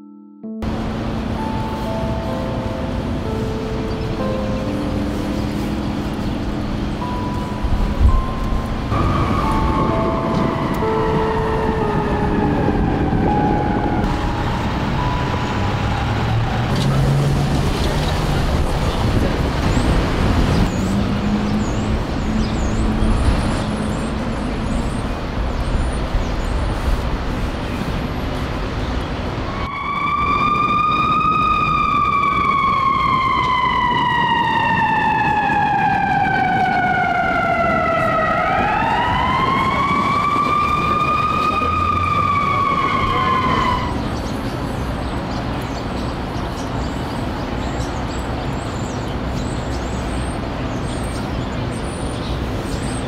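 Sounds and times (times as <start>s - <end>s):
emergency vehicle siren wailing: 0.6s - 25.6s, 29.3s - 45.3s
city street traffic: 0.6s - 53.0s.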